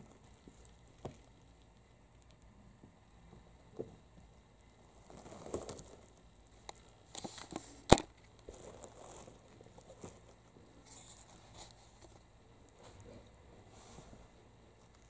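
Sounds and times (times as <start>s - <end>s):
kittens scuffling and rustling: 0.0s - 15.0s.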